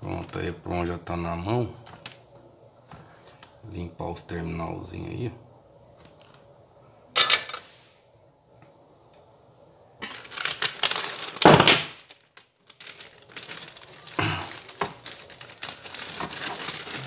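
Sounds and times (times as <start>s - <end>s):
crackly rustling and crinkling: 1.8s - 3.6s, 5.9s - 6.5s, 10.0s - 17.0s.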